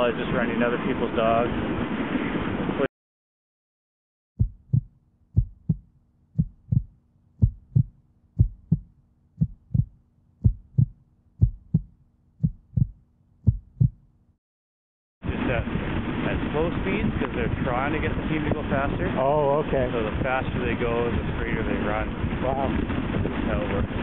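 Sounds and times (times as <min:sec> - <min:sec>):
heartbeat double thump: 0:04.4 - 0:14.0.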